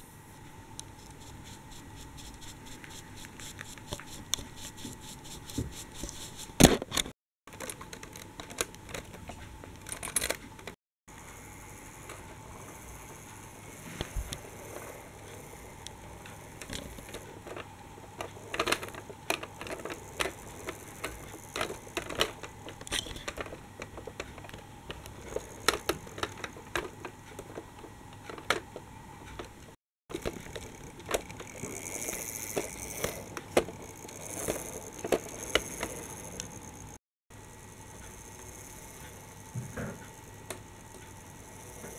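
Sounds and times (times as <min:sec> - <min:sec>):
toy bus rolling on plastic track: 0:07.5 - 0:37.0, 0:37.8 - 0:41.9.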